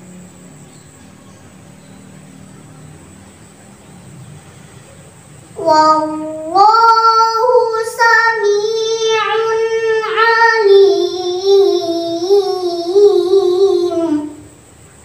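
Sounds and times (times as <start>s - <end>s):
girl reciting melodically: 5.5s - 14.7s.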